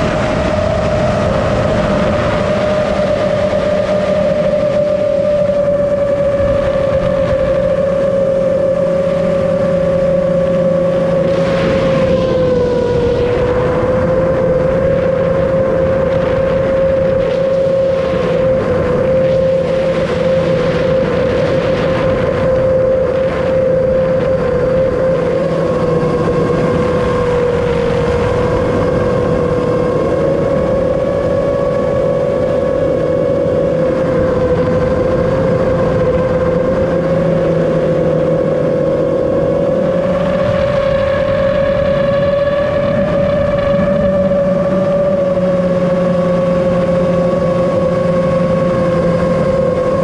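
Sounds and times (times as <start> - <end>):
drone motors whining: 0.0 - 50.0
rushing air: 0.0 - 50.0.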